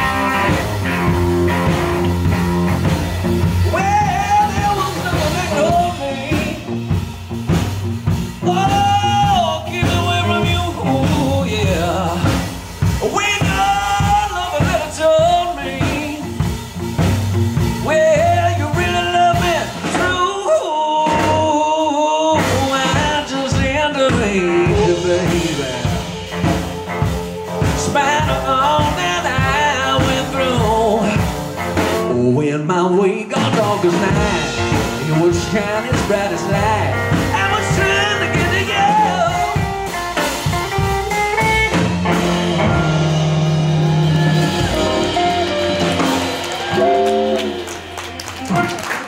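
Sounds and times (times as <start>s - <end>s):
lead guitar melody: 0.0s - 13.8s, 24.2s - 32.0s, 34.1s - 49.0s
blues band playing: 0.0s - 49.0s.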